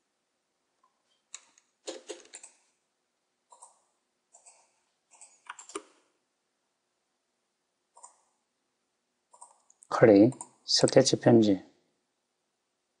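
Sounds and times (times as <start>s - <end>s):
computer mouse clicks: 1.3s - 2.7s, 3.5s - 6.0s, 8.0s - 8.4s, 9.3s - 11.0s.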